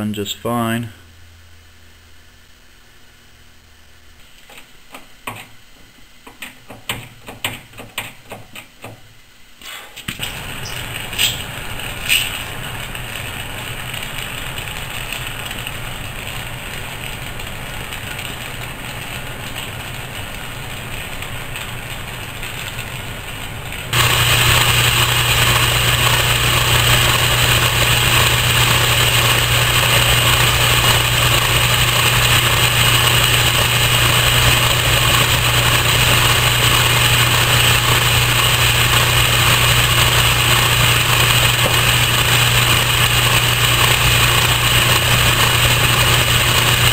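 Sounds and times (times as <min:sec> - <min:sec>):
gas torch hissing: 0:09.6 - 0:46.9
metal lathe humming: 0:24.0 - 0:46.9.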